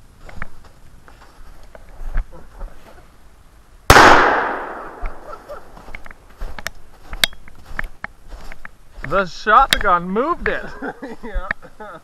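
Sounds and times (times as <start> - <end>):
shotgun blast: 3.9 - 5.2.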